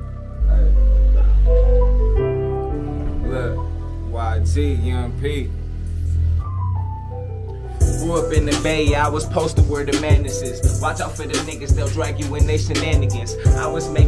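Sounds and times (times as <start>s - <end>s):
hip hop beat: 0.0s - 14.0s
person rapping: 7.8s - 14.0s.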